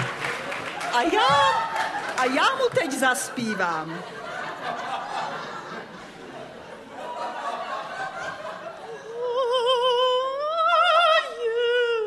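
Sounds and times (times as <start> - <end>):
audience laughing: 0.0 - 9.3.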